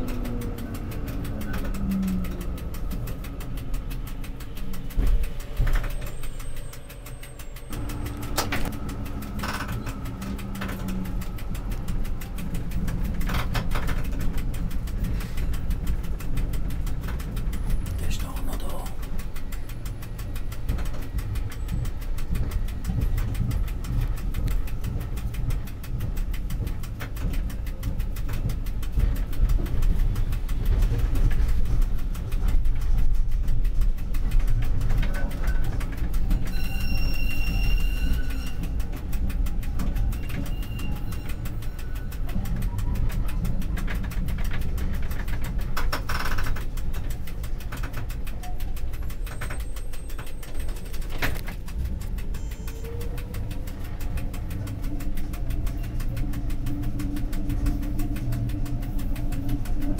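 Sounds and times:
bus engine rumbling: 0:00.0 - 0:59.9
high ringing tone: 0:36.5 - 0:38.6.

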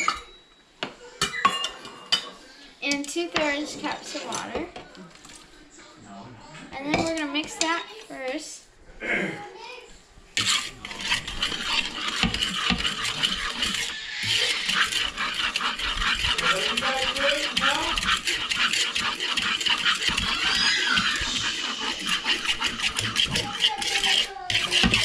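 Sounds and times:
spoon scraping mixing bowl: 0:02.9 - 0:05.5, 0:06.8 - 0:08.4, 0:10.3 - 0:25.0.

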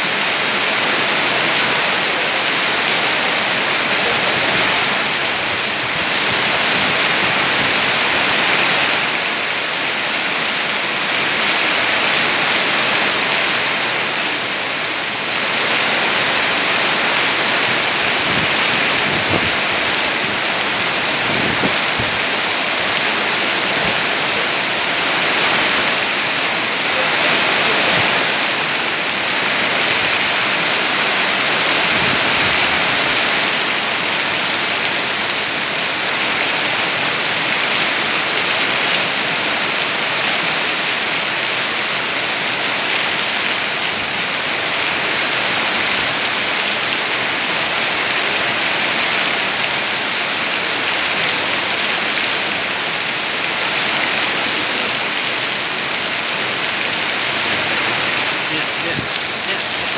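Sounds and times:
heavy rain on foliage: 0:00.0 - 0:59.9
strong wind: 0:15.2 - 0:34.4, 0:52.0 - 0:59.9.

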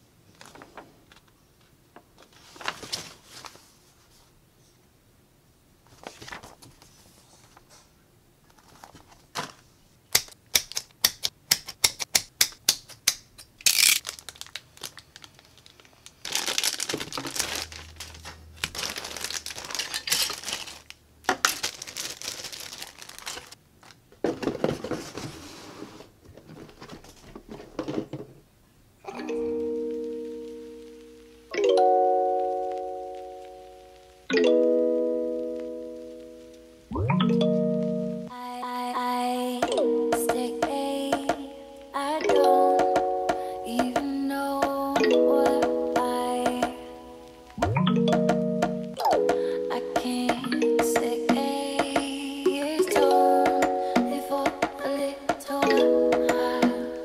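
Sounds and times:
paper sheets rustling: 0:02.2 - 0:04.3, 0:05.9 - 0:07.8, 0:08.5 - 0:09.7, 0:14.0 - 0:23.6, 0:24.3 - 0:27.6
plastic wrapping crinkling and tearing: 0:13.6 - 0:24.0
chiming tone: 0:29.1 - 0:33.8, 0:36.9 - 0:38.3.

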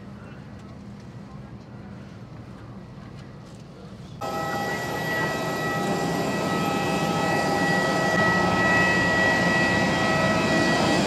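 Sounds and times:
jet turbine whine: 0:04.2 - 0:11.0.

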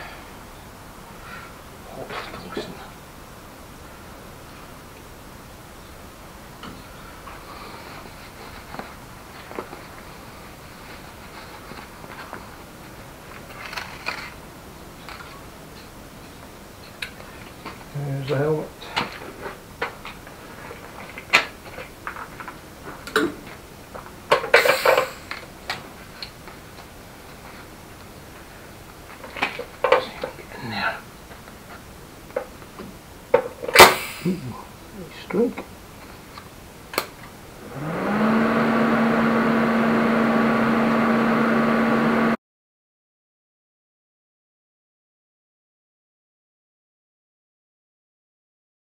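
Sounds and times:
welding arc buzz and hiss: 0:24.5 - 0:25.4.

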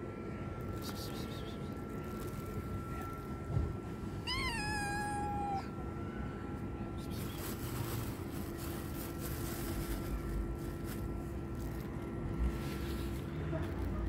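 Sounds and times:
kitten meowing: 0:04.3 - 0:05.7.

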